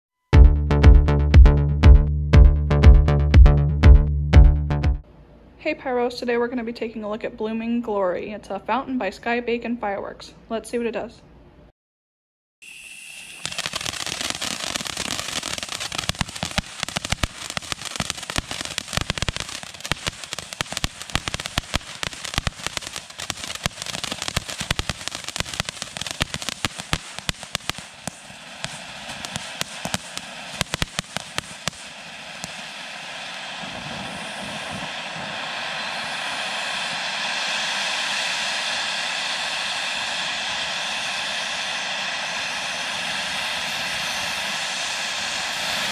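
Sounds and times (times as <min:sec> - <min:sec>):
firework sparks crackling: 0:12.7 - 0:40.6
rushing hiss of spraying sparks: 0:13.0 - 0:40.6.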